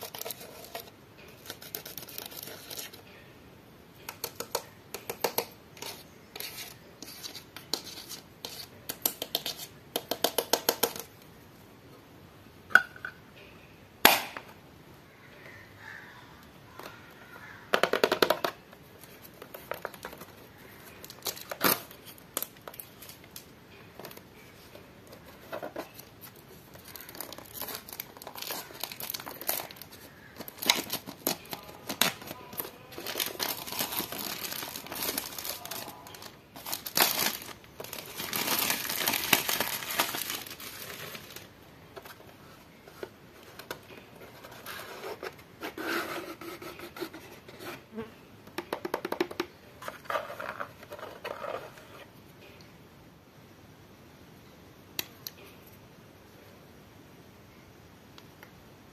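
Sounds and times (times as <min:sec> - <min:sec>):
plastic shrink-wrap crinkling: 0:19.0 - 0:23.4, 0:25.5 - 0:41.5.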